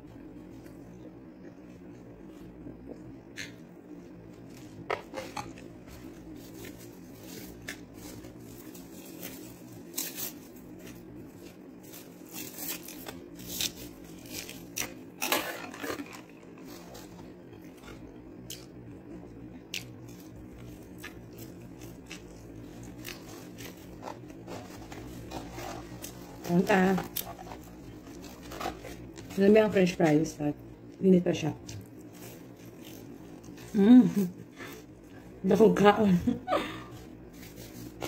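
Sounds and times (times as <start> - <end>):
faint steady hum: 0.0 - 38.0
paper packaging crinkling: 5.0 - 17.4, 21.4 - 30.0.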